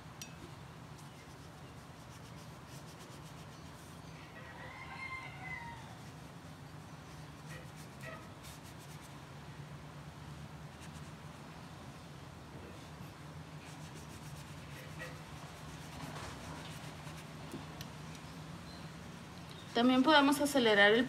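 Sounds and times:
brush strokes on paper: 1.0s - 4.0s, 7.1s - 9.1s, 13.6s - 17.3s.

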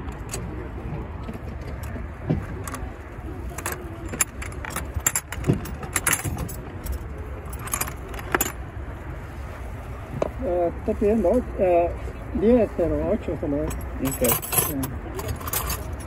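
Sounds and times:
steady low rumble: 0.0s - 16.0s
metal hand tools clinking: 3.5s - 8.6s, 13.6s - 16.0s.

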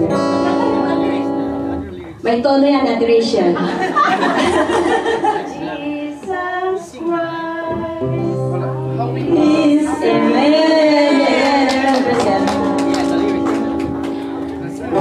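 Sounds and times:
person singing worship song: 5.5s - 12.8s.

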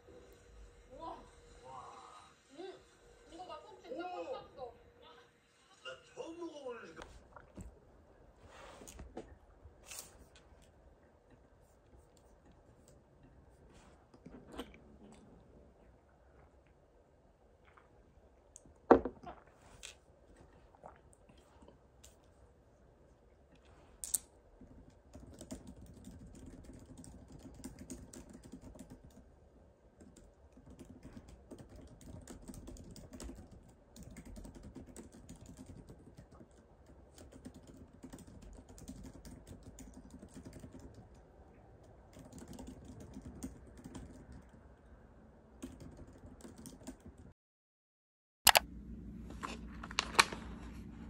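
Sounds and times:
laptop keyboard typing: 24.6s - 29.3s, 30.0s - 41.2s, 41.8s - 44.6s, 45.6s - 47.3s.

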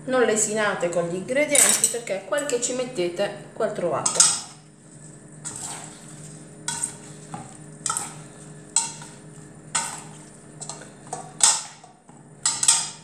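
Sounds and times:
metal utensils clinking in bowl: 1.5s - 2.7s, 4.0s - 4.5s, 9.8s - 13.0s.

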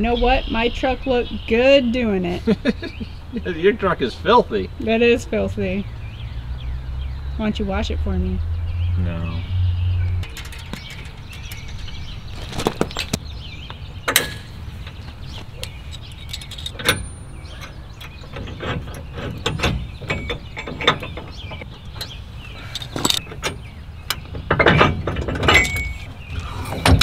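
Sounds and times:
metal clicks and clanks: 10.2s - 13.2s, 14.0s - 27.0s.

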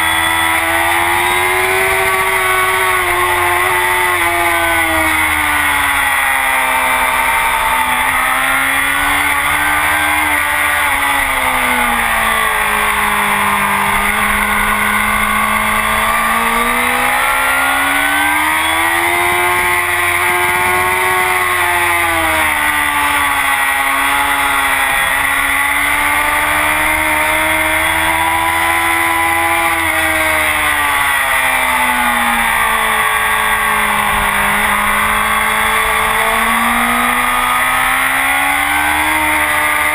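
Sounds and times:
motorcycle engine revving at speed: 0.0s - 39.9s.

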